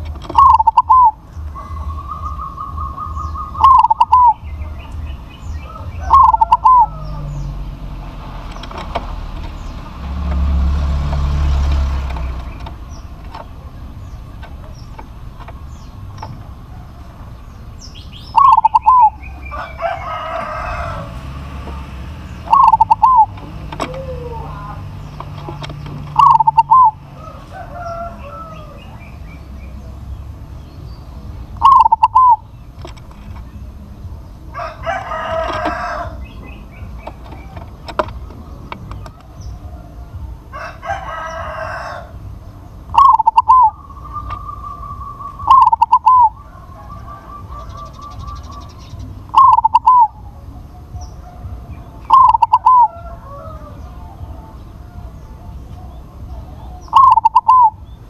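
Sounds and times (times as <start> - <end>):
dove cooing: 0.0 - 30.0, 31.5 - 33.8, 34.5 - 58.0
distant rooster crowing: 0.9 - 4.5, 5.2 - 8.0, 15.6 - 25.1, 26.2 - 29.9, 34.4 - 38.5, 39.1 - 42.4, 43.0 - 57.7.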